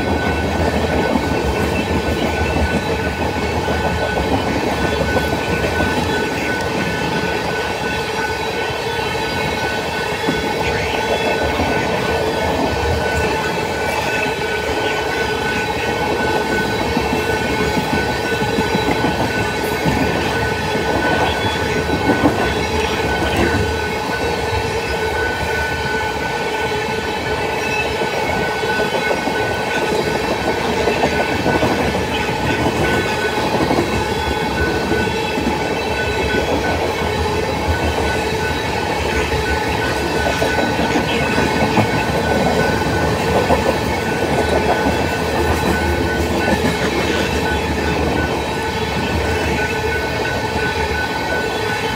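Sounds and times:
train wheels rumbling and clicking: 0:00.0 - 0:51.9.

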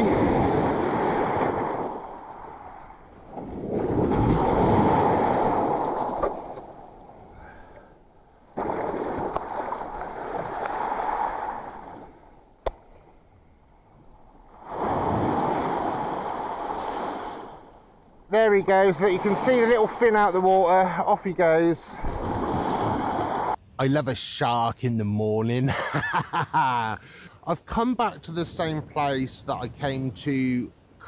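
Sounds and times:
waves washing on shingle: 0:00.0 - 0:06.8, 0:18.3 - 0:23.6.

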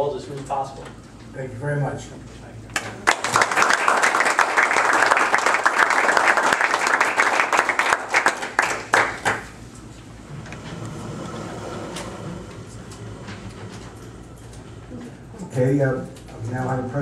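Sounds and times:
audience applauding: 0:02.8 - 0:09.6.

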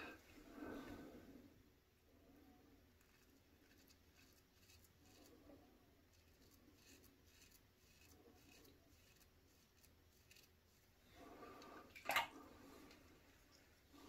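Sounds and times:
razor scraping stubble: 0:03.0 - 0:05.3, 0:06.1 - 0:10.9.

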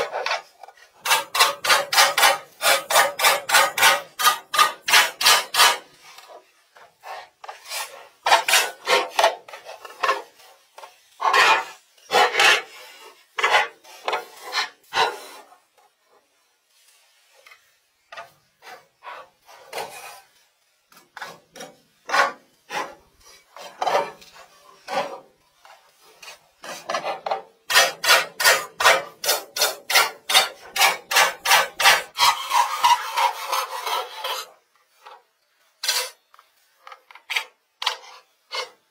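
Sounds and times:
hand saw cutting wood: 0:01.0 - 0:05.9, 0:07.1 - 0:10.2, 0:26.6 - 0:34.5.

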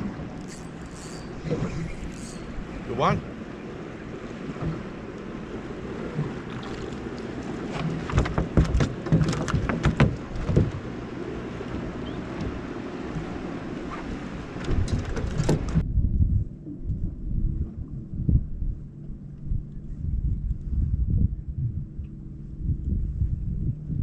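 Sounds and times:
water lapping against boat hull: 0:00.0 - 0:15.8
wind buffeting microphone: 0:01.2 - 0:24.0
knocks and thumps: 0:08.0 - 0:10.8.

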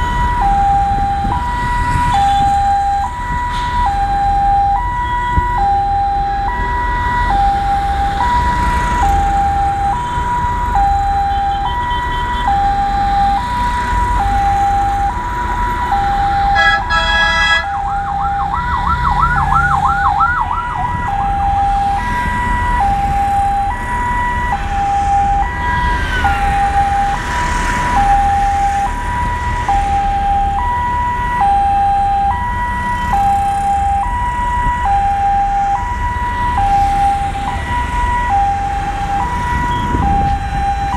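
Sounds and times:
rising siren whoops: 0:00.0 - 0:40.9
traffic road rumble: 0:00.0 - 0:40.9
two-tone vehicle siren: 0:00.0 - 0:40.9
horn blast: 0:16.6 - 0:17.8.

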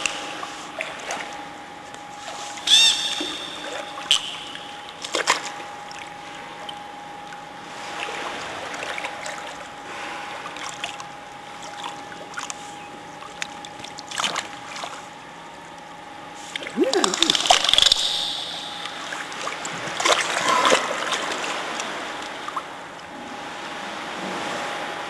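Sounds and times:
faint steady tone: 0:00.0 - 0:08.2, 0:16.7 - 0:21.1
water lapping and sloshing: 0:00.0 - 0:25.0
water splash: 0:16.8 - 0:21.9.

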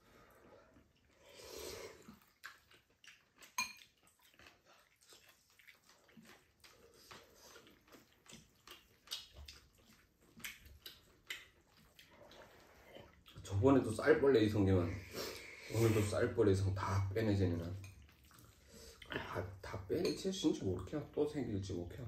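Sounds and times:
person chewing noodles: 0:00.0 - 0:13.9, 0:17.8 - 0:19.6.

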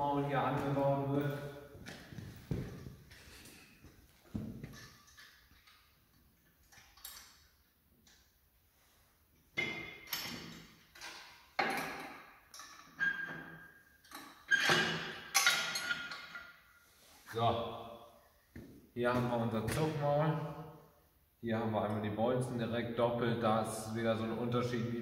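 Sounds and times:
metal hitch parts clanking: 0:14.1 - 0:16.4.

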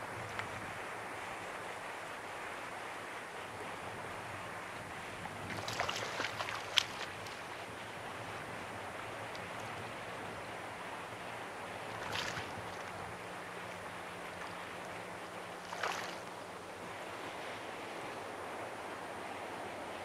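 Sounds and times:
light wind on microphone: 0:00.0 - 0:20.0
sea water lapping: 0:00.0 - 0:20.0
brief water splash: 0:12.0 - 0:12.6, 0:15.6 - 0:16.2.

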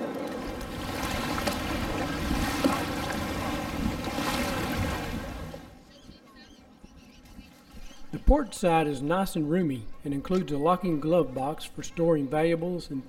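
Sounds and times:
small waves lapping: 0:00.0 - 0:06.0
wind buffeting microphone: 0:00.1 - 0:05.7.

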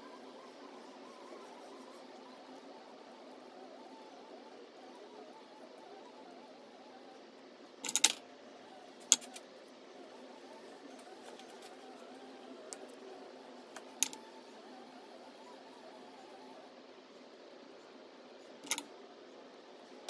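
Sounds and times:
metallic clicks of small wires: 0:07.8 - 0:08.2, 0:09.0 - 0:09.4, 0:18.6 - 0:18.9.

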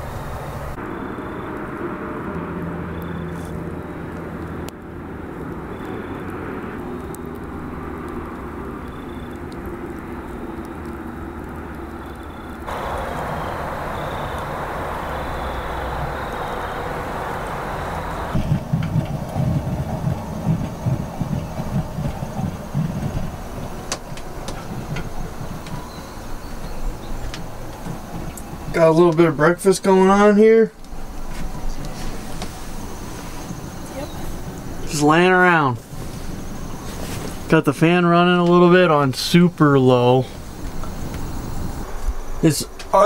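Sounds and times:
campfire embers crackling: 0:00.0 - 0:43.0
steady low hum: 0:00.0 - 0:43.0
faint high chirp: 0:02.9 - 0:03.5, 0:25.7 - 0:27.3.

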